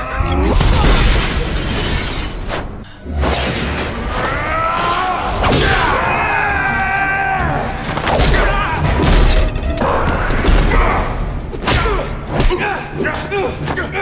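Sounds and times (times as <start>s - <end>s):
loud action film music: 2.8s - 14.0s.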